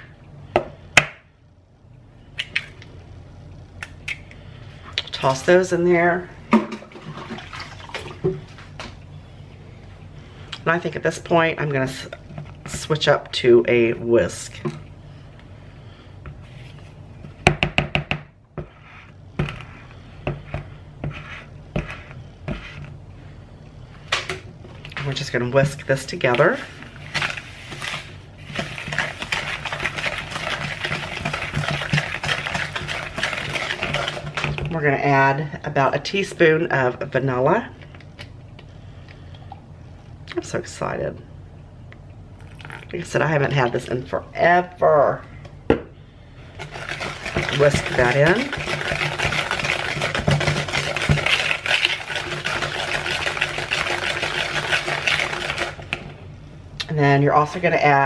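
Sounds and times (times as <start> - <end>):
whisk beating in plastic bowl: 25.0 - 34.8, 46.6 - 56.1.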